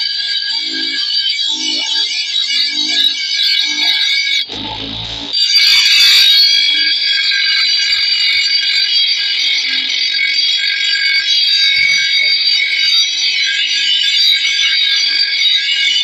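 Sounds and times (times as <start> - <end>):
grinder screeching on metal blade: 3.7 - 6.5.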